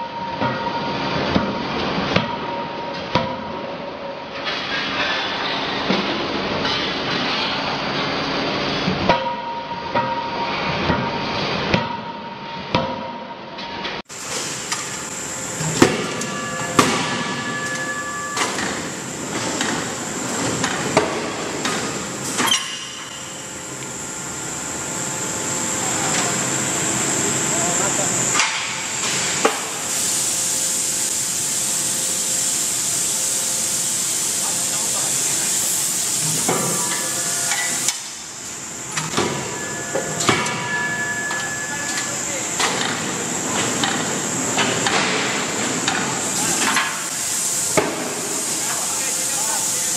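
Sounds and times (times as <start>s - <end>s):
steady machine hum: 14.0s - 49.9s
thin high whine: 14.3s - 20.0s, 36.2s - 38.1s, 38.9s - 43.6s
ringing metal tone: 15.6s - 18.5s
steady hiss: 27.0s - 39.2s, 41.3s - 49.9s.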